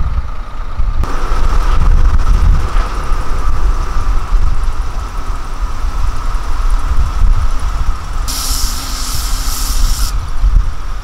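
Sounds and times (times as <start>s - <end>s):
diesel truck engines rumbling: 0.0s - 11.0s
air brakes hissing: 8.2s - 10.4s.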